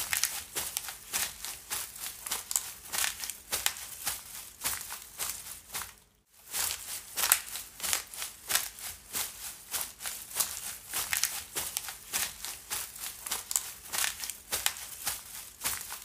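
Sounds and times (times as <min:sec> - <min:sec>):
footsteps crunching through leaves: 0:00.0 - 0:16.0.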